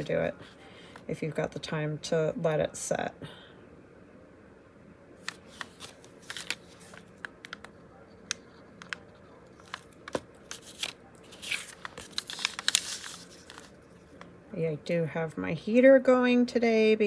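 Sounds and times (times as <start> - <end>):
paper crinkling: 5.2 - 14.3.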